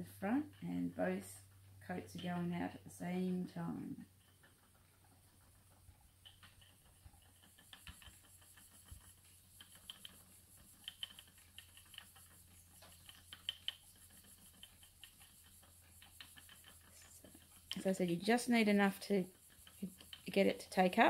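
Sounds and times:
spinning wheel clicking: 0:03.8 - 0:21.0.

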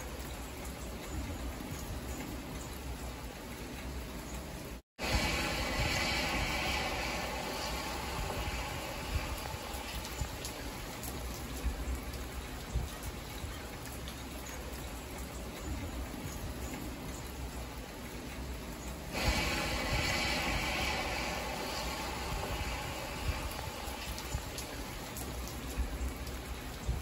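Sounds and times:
rain pattering on windshield: 0:00.0 - 0:27.0
tyres hissing on wet road: 0:00.0 - 0:27.0
sharp taps of raindrops: 0:09.1 - 0:19.0, 0:23.4 - 0:27.0.

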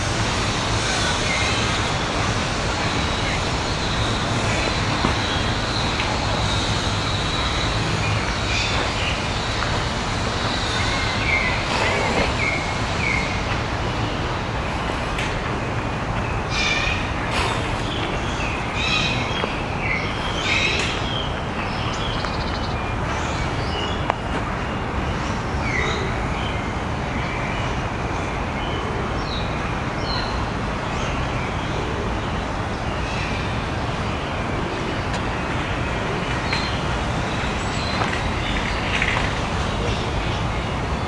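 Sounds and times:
distant traffic hum: 0:00.0 - 0:41.0
small birds chirping: 0:16.2 - 0:24.4.

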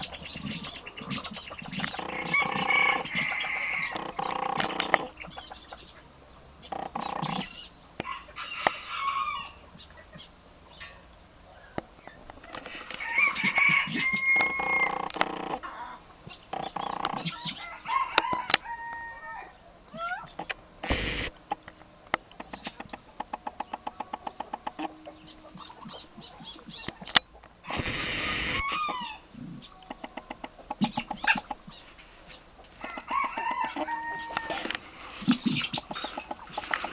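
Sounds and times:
fowl calling: 0:00.0 - 0:10.9, 0:11.5 - 0:21.7, 0:22.4 - 0:36.9
brief noisy burst: 0:27.7 - 0:28.9.

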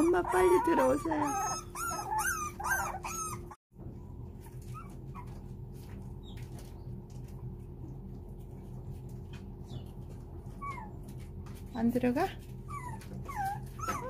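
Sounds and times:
puppies whining: 0:00.0 - 0:03.6, 0:04.4 - 0:07.0, 0:09.6 - 0:11.4, 0:12.4 - 0:14.0
low steady hum: 0:00.0 - 0:14.0.

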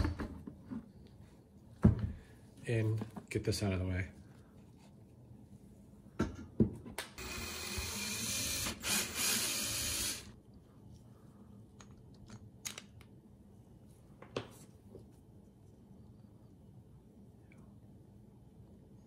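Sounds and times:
cordless drill running: 0:07.2 - 0:10.3.

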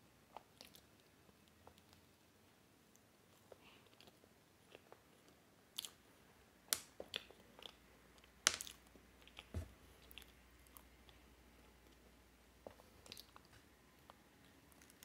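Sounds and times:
chewing with wet mouth clicks: 0:12.7 - 0:13.5.

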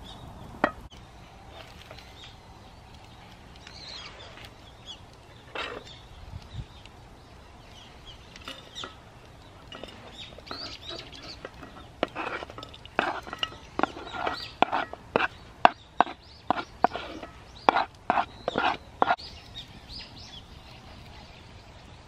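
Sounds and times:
small birds chirping: 0:00.0 - 0:22.0
wooden utensil scraping wooden plate: 0:05.5 - 0:05.9, 0:09.7 - 0:19.2.

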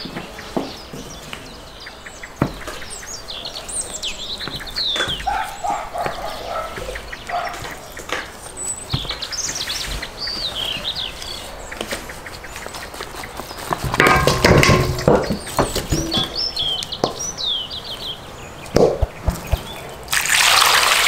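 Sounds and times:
birds chirping and singing: 0:00.0 - 0:20.1
low animal calls: 0:04.4 - 0:08.3.

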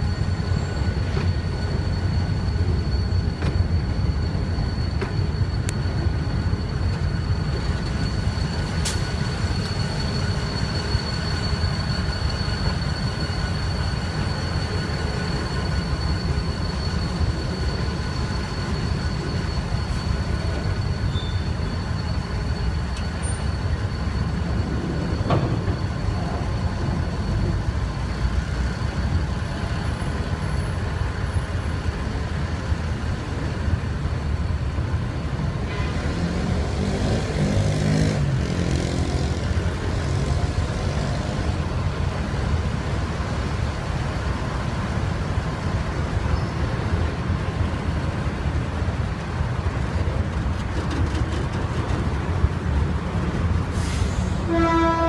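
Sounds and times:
high wheel squeal: 0:00.0 - 0:55.0
road vehicle engine: 0:00.0 - 0:55.0
train wheels rumbling on rail: 0:00.0 - 0:55.0.

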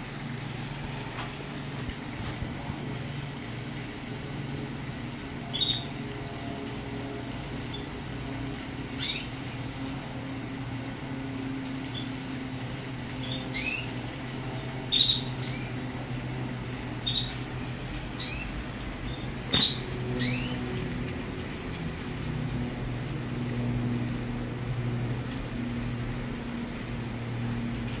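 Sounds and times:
steady low hum: 0:00.0 - 0:28.0
canaries chirping: 0:05.4 - 0:06.0, 0:08.9 - 0:09.3, 0:13.2 - 0:14.0, 0:14.9 - 0:15.8, 0:16.9 - 0:17.4, 0:18.1 - 0:20.8.

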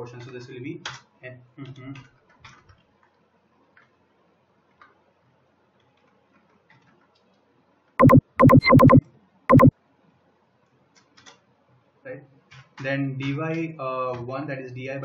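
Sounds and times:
electronic notification jingle: 0:08.0 - 0:09.7.

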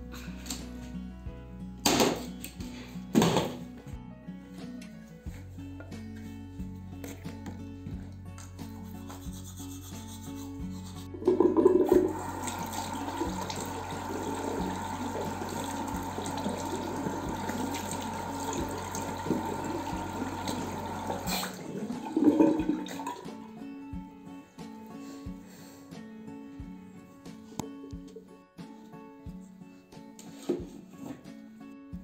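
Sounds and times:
tap water running: 0:11.1 - 0:23.2.

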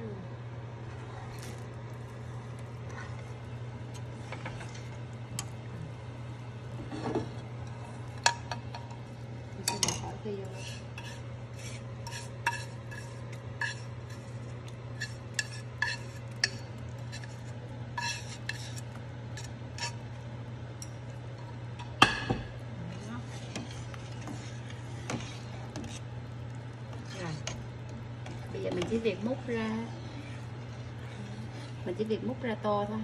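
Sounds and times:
steady low hum: 0:00.0 - 0:33.0
metal ladle scraping a pot: 0:09.7 - 0:20.1, 0:23.2 - 0:26.2, 0:26.9 - 0:32.4.

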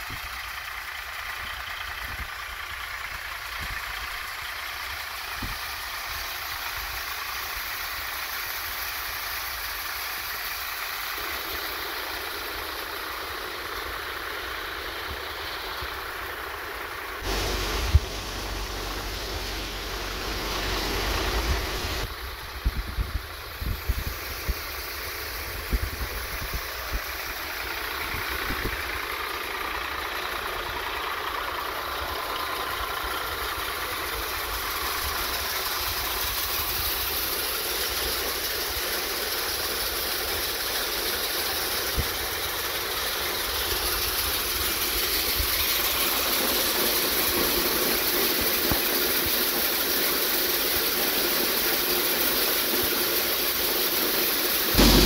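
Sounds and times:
diesel tractor engine running: 0:00.0 - 0:55.0
thresher whirring: 0:10.9 - 0:29.9, 0:30.8 - 0:55.0
low thumps: 0:17.3 - 0:22.1, 0:54.8 - 0:55.0.

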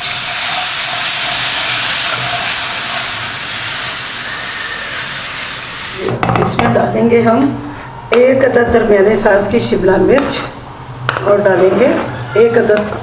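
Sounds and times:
milk hissing in hot pan: 0:00.0 - 0:06.1.

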